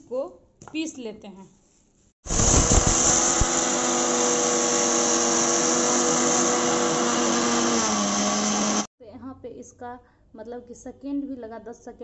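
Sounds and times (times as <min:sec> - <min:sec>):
mixer grinder whining: 0:02.3 - 0:08.9.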